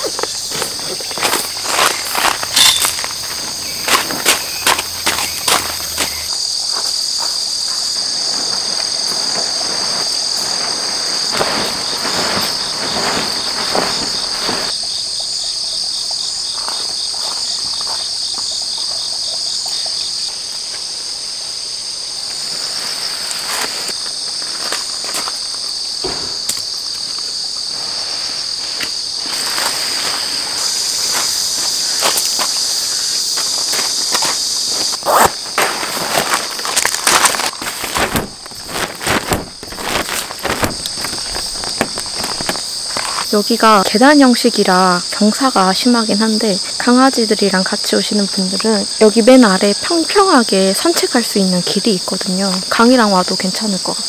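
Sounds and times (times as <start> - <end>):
rustling tarp fabric: 0.0 - 6.8, 7.4 - 14.7, 22.3 - 25.7, 27.6 - 43.4
footsteps on gravel: 0.0 - 14.7, 28.8 - 43.3
insects chirping: 0.0 - 54.0.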